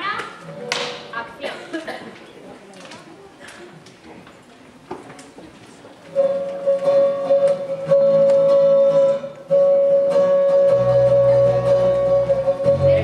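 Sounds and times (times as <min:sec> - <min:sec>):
light rhythmic accompaniment: 0:06.1 - 0:13.0
low bass notes: 0:07.9 - 0:13.0.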